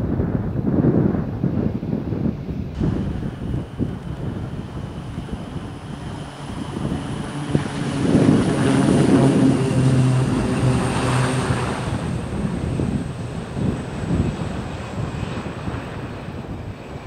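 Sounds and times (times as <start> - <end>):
turboprop aircraft propeller drone: 0.0 - 17.0.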